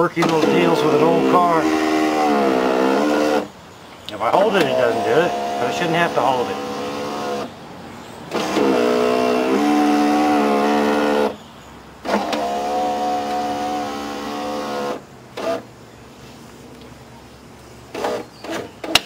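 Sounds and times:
power window motor whining: 0.2s - 3.5s, 4.4s - 7.5s, 8.3s - 11.4s, 12.0s - 15.7s, 17.9s - 19.0s.

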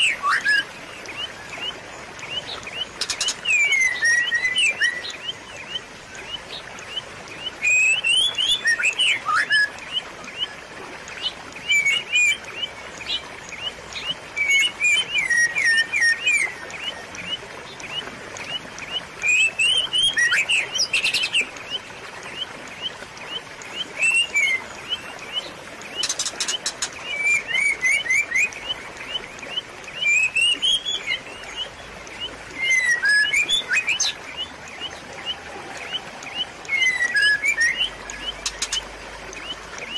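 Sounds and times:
gently running water: 0.0s - 39.9s
small birds chirping: 0.0s - 39.9s.

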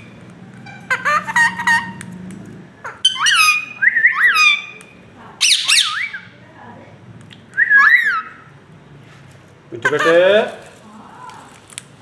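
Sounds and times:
parakeets squawking: 0.0s - 2.0s, 2.8s - 6.4s, 7.7s - 8.5s, 9.8s - 10.5s.

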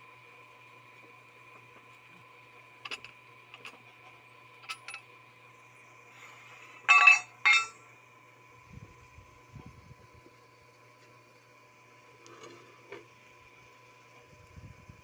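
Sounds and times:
metal pipe clinks and clanks: 4.6s - 5.0s, 6.9s - 7.8s.

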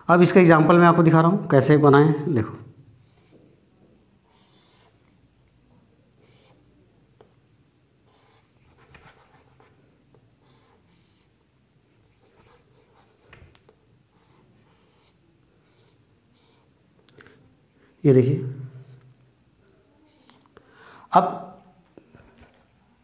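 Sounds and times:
marker drawing on whiteboard: 3.0s - 3.6s, 4.2s - 5.2s, 6.1s - 7.3s, 8.0s - 17.4s, 18.6s - 19.2s, 20.1s - 20.4s.

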